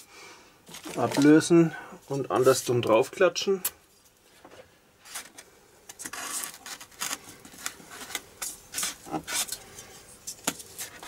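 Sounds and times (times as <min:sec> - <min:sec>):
foam rubbing and crackling: 0:06.0 - 0:09.6.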